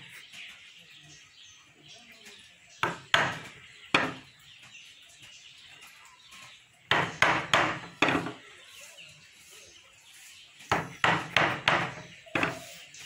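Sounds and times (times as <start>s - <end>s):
mallet knocking on wood chisel: 10.7s - 12.6s.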